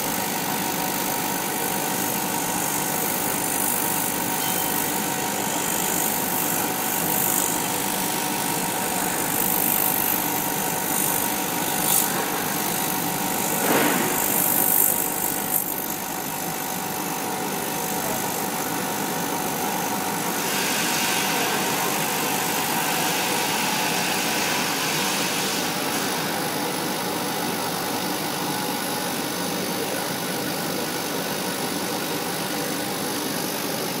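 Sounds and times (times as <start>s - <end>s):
laser cutter humming and whining: 0.0s - 34.0s
hissing bursts of cutting: 0.1s - 18.8s, 20.1s - 26.4s.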